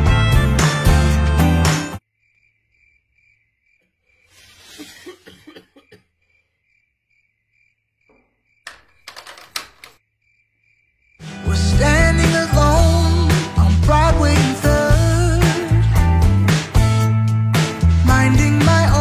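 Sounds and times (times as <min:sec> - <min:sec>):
music: 0:00.0 - 0:02.0, 0:11.2 - 0:19.0
cricket chirp sound effect: 0:02.0 - 0:11.4
sharp knocks and clicks: 0:08.1 - 0:10.0.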